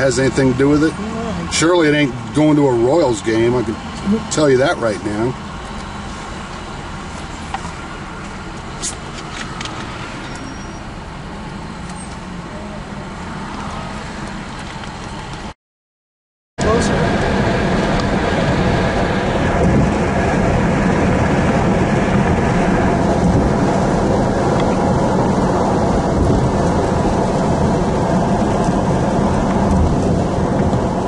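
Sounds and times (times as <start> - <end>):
traffic noise inside car: 0.0 - 15.6, 16.6 - 31.0
wind and road noise from car: 0.0 - 15.6, 16.6 - 31.0
wind buffeting microphone: 16.7 - 31.0.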